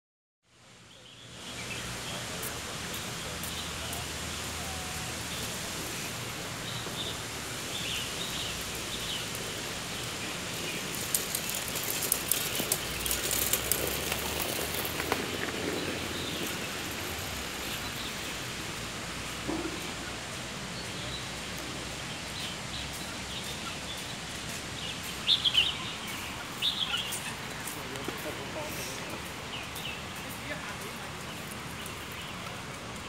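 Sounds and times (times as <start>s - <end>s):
steady background hiss: 0.6s - 13.5s
bird chirps: 24.8s - 27.5s.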